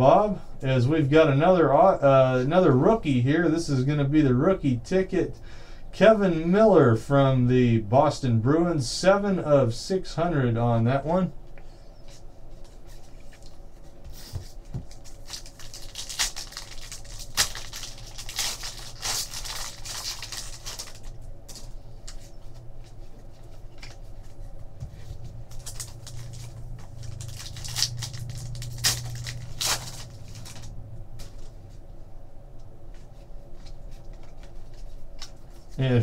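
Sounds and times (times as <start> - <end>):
low steady hum: 0.0 - 36.0
foil wrapper crinkling and tearing: 14.8 - 22.3, 25.5 - 30.8.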